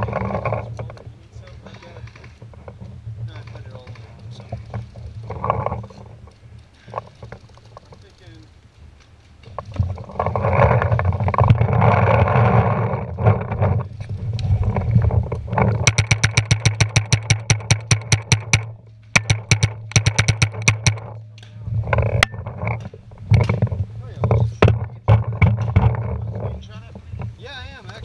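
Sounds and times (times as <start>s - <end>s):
rustling noise: 0.0s - 28.0s
paintball marker firing: 15.9s - 21.5s.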